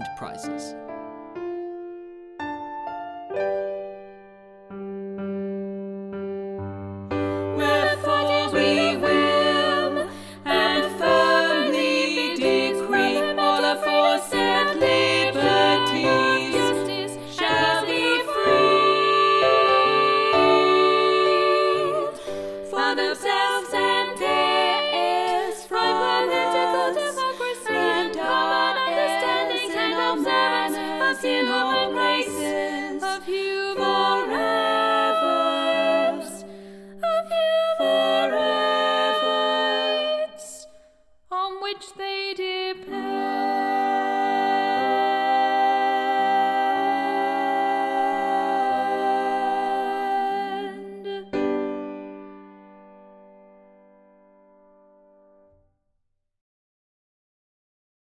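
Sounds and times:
voices singing slow song: 7.2s - 51.8s.

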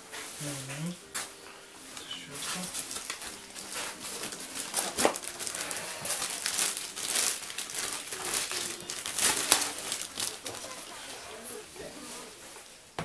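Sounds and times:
plastic bag crinkling: 2.0s - 11.9s.

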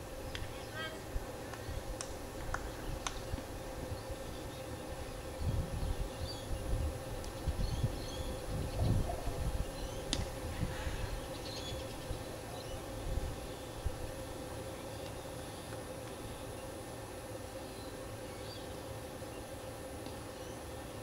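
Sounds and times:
steady faint drone: 0.0s - 21.0s
wind buffeting microphone: 1.1s - 12.3s.

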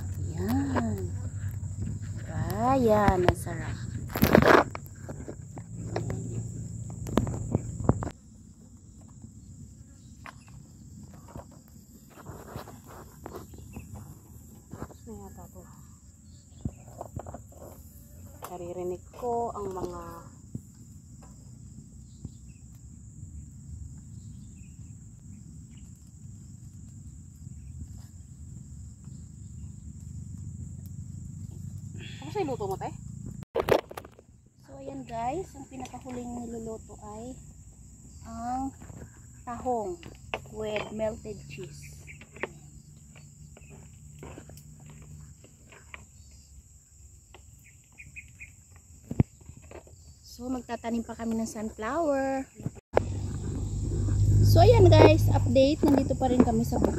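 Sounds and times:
insects chirring: 0.0s - 56.9s
high-pitched insect chirring: 53.0s - 56.9s
low rumble: 53.0s - 56.9s.

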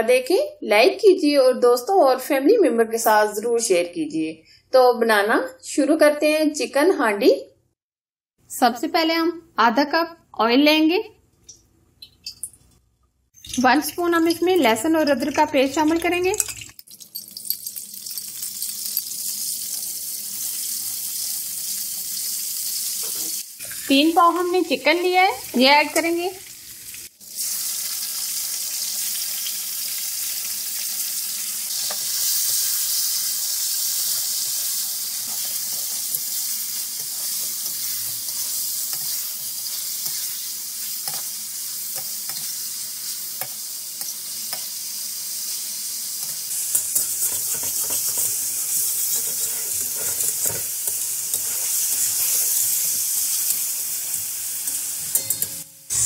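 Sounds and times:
chicken sizzling in hot oil: 13.4s - 56.0s
spatula scraping a wok: 31.7s - 42.6s, 46.2s - 56.0s.

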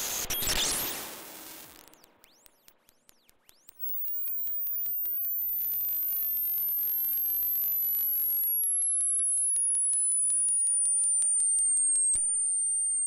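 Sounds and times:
piercing high falling tone: 4.2s - 13.0s.

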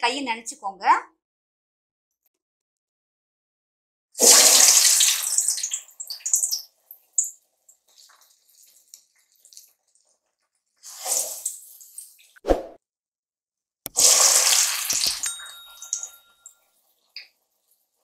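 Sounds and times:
batter sizzling in hot oil: 4.2s - 12.4s, 13.9s - 18.0s
oil crackling: 13.9s - 15.3s.

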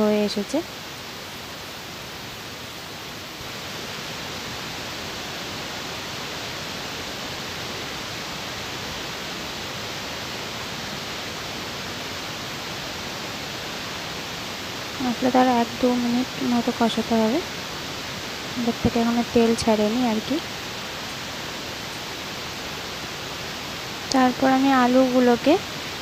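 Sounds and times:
spices sizzling in hot oil: 24.0s - 25.6s.

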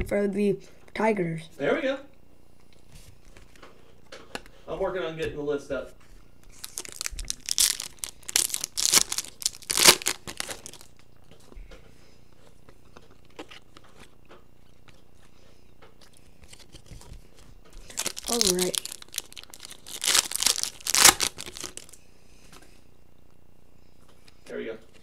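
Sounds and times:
card pack wrapper tearing: 6.5s - 11.0s, 17.8s - 22.0s.

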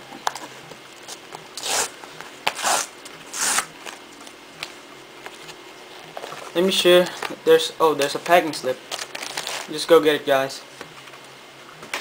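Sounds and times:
cardboard ripping: 2.5s - 4.0s, 8.9s - 9.7s.

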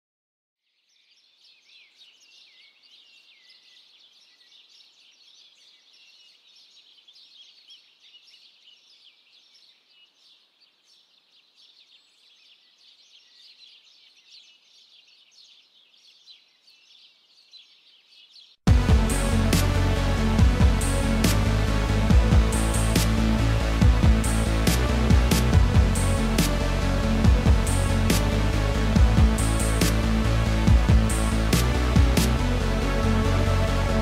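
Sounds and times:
small birds chirping: 0.6s - 20.0s.

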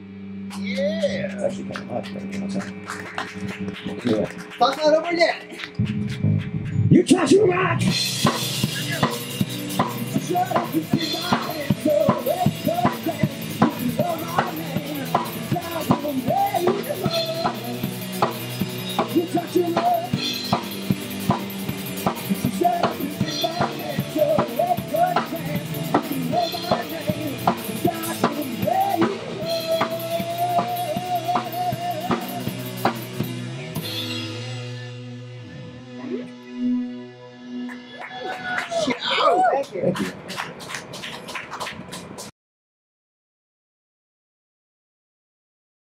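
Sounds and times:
live rock band playing: 0.1s - 39.0s
drum kit beat: 0.5s - 34.8s.

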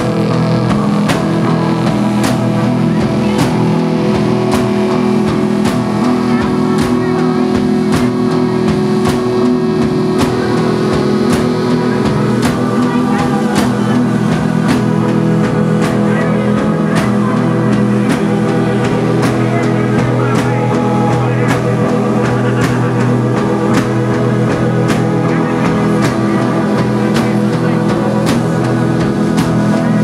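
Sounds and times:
drum kit: 0.0s - 30.0s
electric bass: 0.0s - 30.0s
electric guitar: 0.0s - 30.0s
held keyboard chord: 0.0s - 30.0s.

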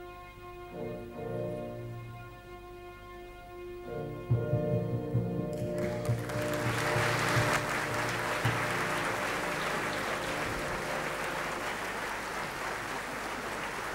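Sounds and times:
audience applauding: 5.5s - 13.9s.

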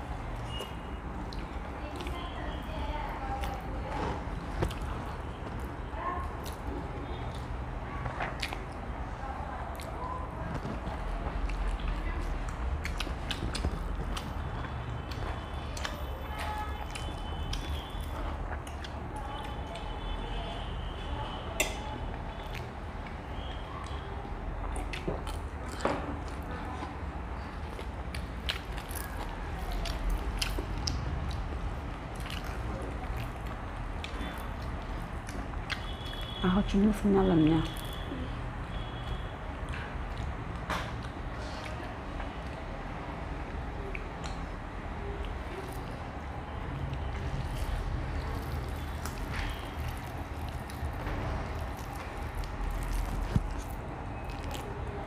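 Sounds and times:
chewing and biting food: 0.1s - 20.4s, 21.6s - 36.4s, 38.7s - 55.0s.

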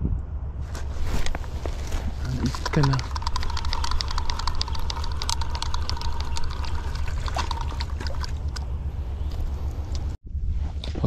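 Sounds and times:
steady low rumble: 0.0s - 11.0s
fishing reel clicking: 2.7s - 8.0s.

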